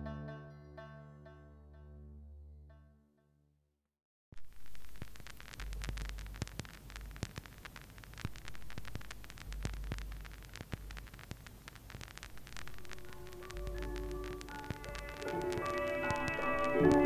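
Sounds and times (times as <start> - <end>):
faint hiss: 4.4 - 17.0
record crackle and pops: 4.4 - 17.0
low hum: 12.4 - 17.0.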